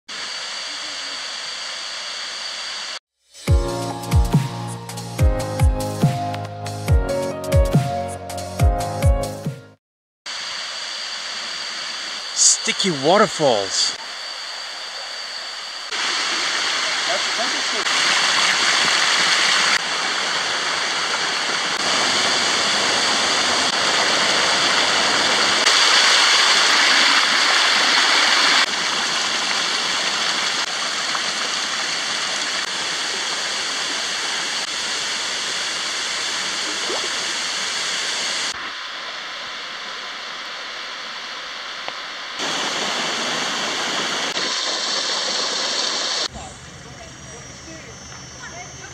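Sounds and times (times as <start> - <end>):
water rushing down cascades: 10.4 - 14.0, 15.9 - 46.3.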